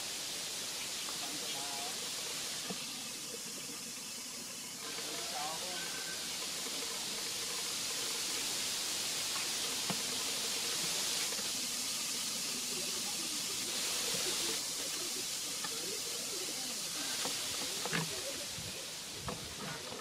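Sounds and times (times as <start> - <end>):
high outdoor hiss: 0.0 - 20.0
faint wavering calls: 5.0 - 6.4.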